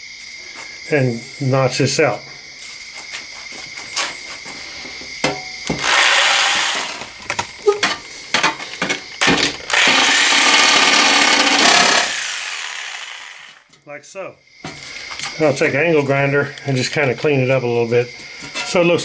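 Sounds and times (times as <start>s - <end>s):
reciprocating saw cutting metal: 5.8s - 7.0s, 9.7s - 13.6s.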